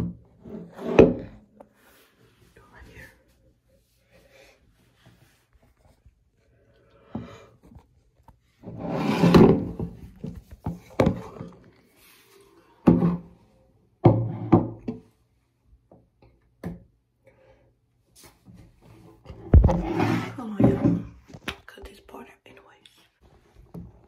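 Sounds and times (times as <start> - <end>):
objects knocking and thudding: 0.0 - 1.6, 9.0 - 11.7, 12.8 - 13.4, 14.0 - 15.1, 18.5 - 21.6.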